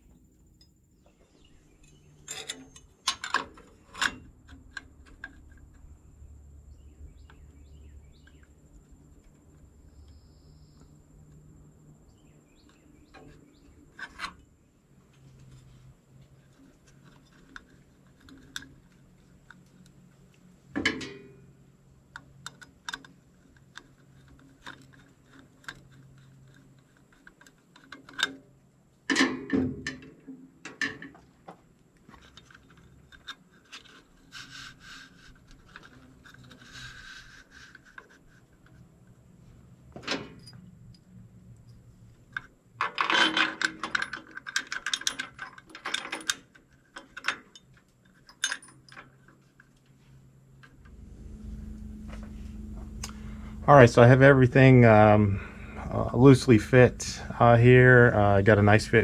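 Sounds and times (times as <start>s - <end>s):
metal bracket scraping: 1.8s - 4.3s
metal parts clicking and knocking: 1.8s - 5.8s, 41.6s - 49.8s.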